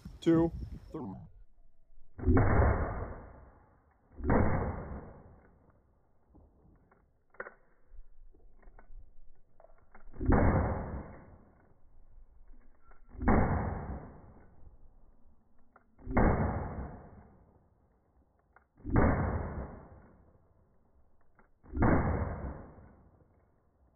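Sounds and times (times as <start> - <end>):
handgun shots with echo: 2.2 - 3.5, 4.2 - 5.4, 10.1 - 11.3, 13.1 - 14.4, 16.0 - 17.3, 18.8 - 20.1, 21.6 - 23.0.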